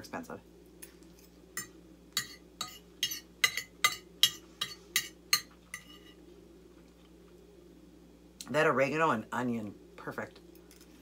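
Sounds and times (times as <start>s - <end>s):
fork clinking on a plate: 1.6s - 6.1s.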